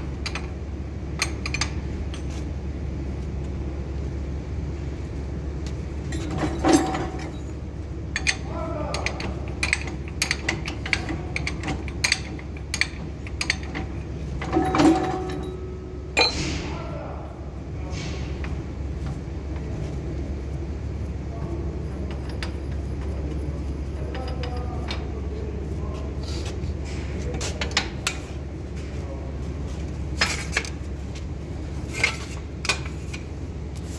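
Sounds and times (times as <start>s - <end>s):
steady low hum: 0.0s - 33.9s
sharp metal clank: 16.2s - 16.8s.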